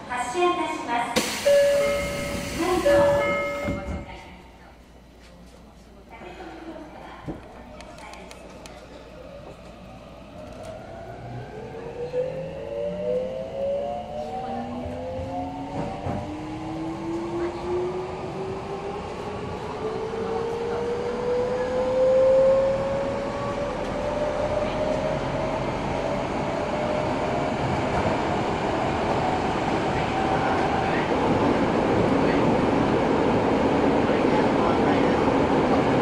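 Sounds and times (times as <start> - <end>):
train wheel and running noise: 0.7 - 4.7, 13.5 - 36.0.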